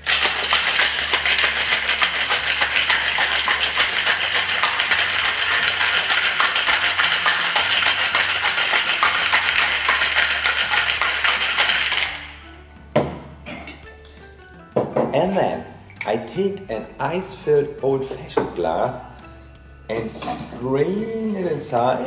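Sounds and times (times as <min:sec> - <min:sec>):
ice rattling in cocktail shaker: 0:00.0 - 0:12.4.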